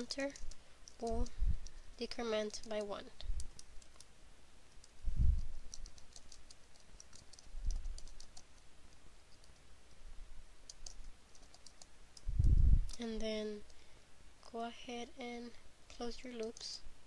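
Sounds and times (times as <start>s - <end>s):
dull low thumps: 5.0s - 5.6s, 12.2s - 13.0s.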